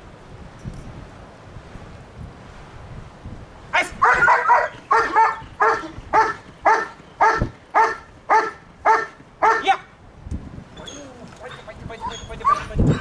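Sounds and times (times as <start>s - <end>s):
dog barking: 3.9s - 9.8s, 11.5s - 13.0s.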